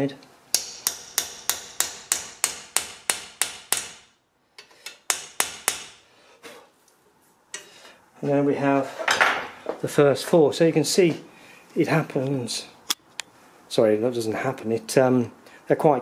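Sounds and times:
hammer striking metal: 0.5 - 4.2, 4.8 - 6.0.

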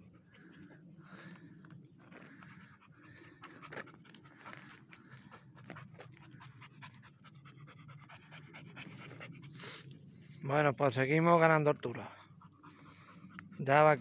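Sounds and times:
panting close to microphone: 0.0 - 10.5, 11.2 - 14.0
footsteps on rocky ground: 1.2 - 2.6, 3.4 - 6.2.

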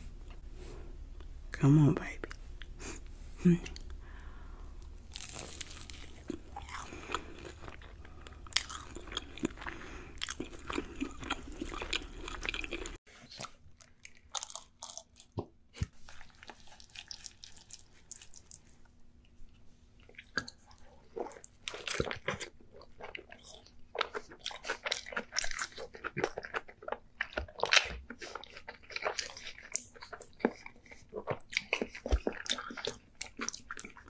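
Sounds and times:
crunchy bites and chewing: 4.8 - 18.6, 21.2 - 34.0.

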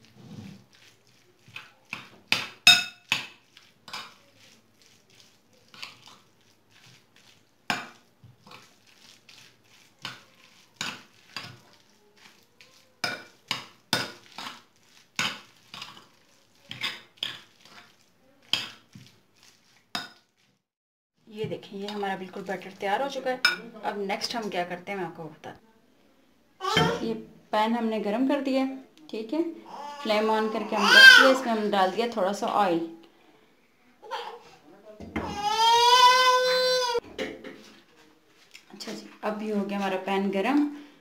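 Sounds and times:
spoon scraping ceramic bowl: 0.1 - 20.4.

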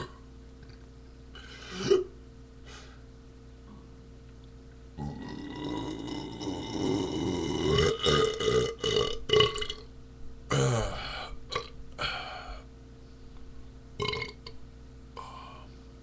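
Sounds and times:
man belching: 1.7 - 2.1, 5.0 - 9.8, 10.5 - 12.6, 14.0 - 14.6.

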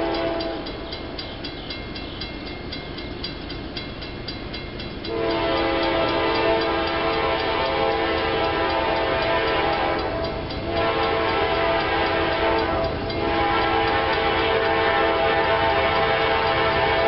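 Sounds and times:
locomotive air horn chord: 0.0 - 0.7, 5.1 - 17.0.

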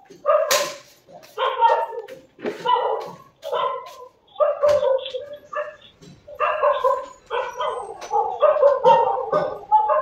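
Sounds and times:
dog barking: 0.1 - 10.0.

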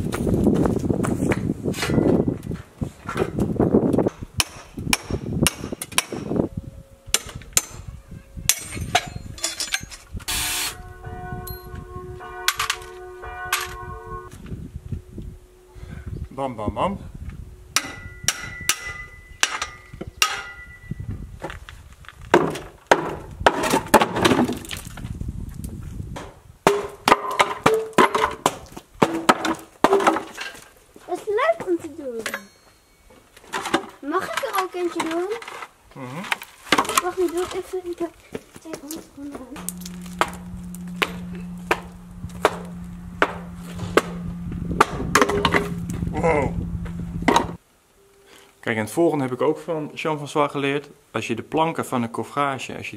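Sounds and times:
hammer blows on wooden boards: 4.1 - 6.4, 39.6 - 46.0
low hum: 6.2 - 21.2, 39.4 - 48.4
wooden boards clattering on concrete: 22.3 - 25.1, 26.2 - 30.8, 33.4 - 39.1.

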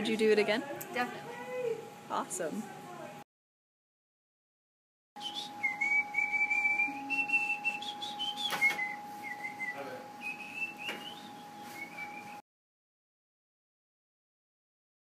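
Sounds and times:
steady high hum: 0.0 - 3.2, 5.2 - 12.4
person whistling a tune: 5.2 - 12.4.

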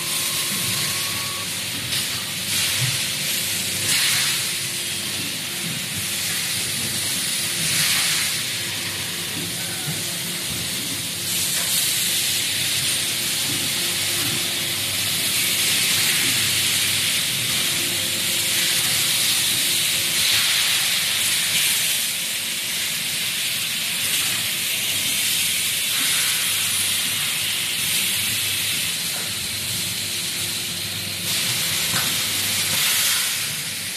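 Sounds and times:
faint machine hum: 0.0 - 33.9
forming presses hissing: 0.0 - 33.9.

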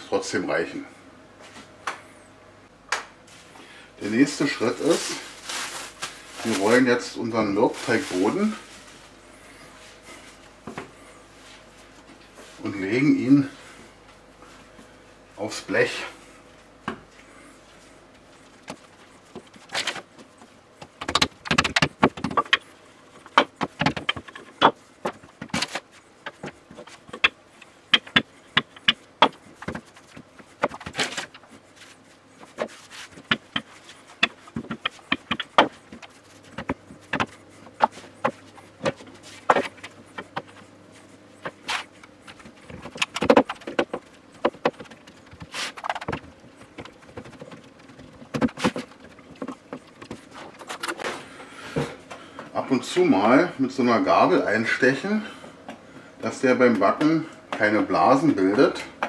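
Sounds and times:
dough rubbing: 4.1 - 10.5, 16.5 - 51.1.

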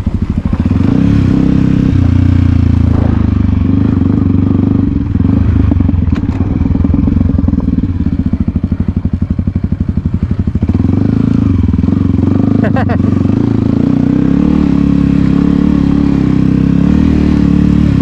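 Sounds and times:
dirt bike engine running: 0.0 - 18.0.

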